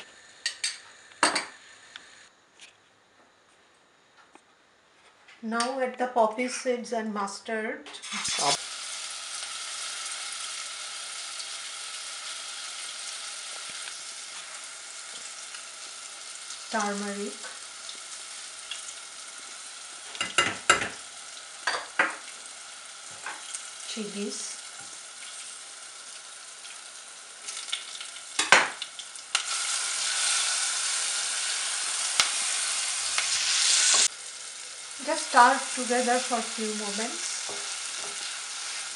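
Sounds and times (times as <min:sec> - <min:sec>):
seeds sizzling in hot oil: 0:08.0 - 0:38.9.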